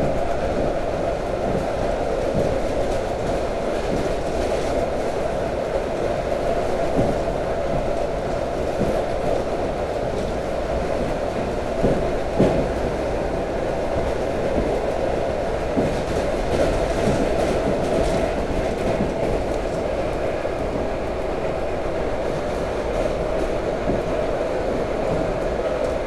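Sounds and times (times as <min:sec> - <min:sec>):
faint knocks from track: 0:10.9 - 0:12.8.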